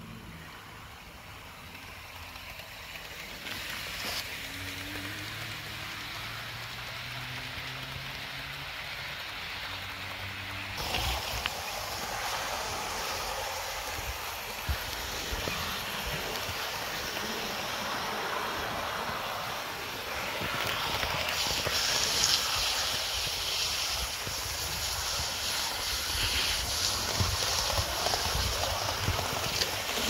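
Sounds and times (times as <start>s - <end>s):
model train wheels rolling on rail: 0.0s - 30.0s.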